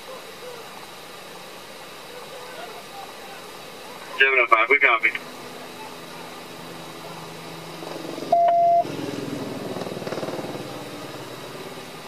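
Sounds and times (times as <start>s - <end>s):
car engine idling: 4.0s - 12.0s
loud electronic beep: 8.3s - 8.9s.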